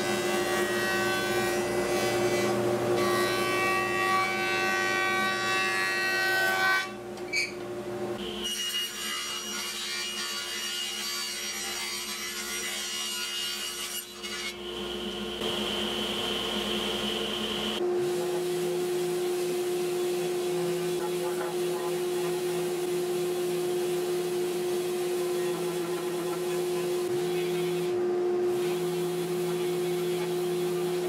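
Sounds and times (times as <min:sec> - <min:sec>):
steady machine drone: 0:14.5 - 0:31.0.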